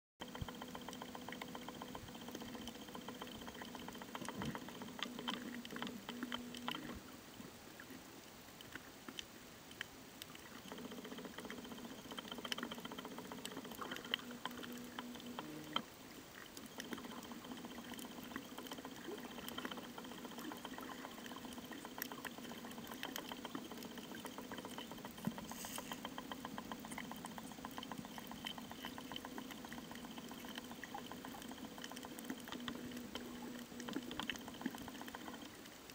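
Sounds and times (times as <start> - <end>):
low underwater hum: 0.2 - 35.9
underwater crackle of tiny clicks: 0.2 - 35.9.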